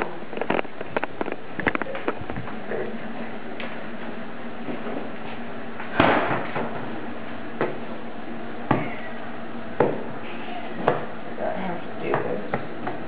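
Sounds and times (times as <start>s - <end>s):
dull knocks of dough pressed: 9.8s - 10.1s, 10.8s - 11.1s.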